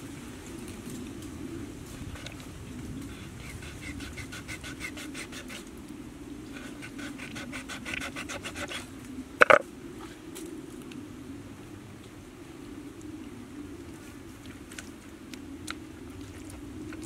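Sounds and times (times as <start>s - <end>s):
knife sawing through skin: 3.3s - 5.6s, 6.6s - 8.9s.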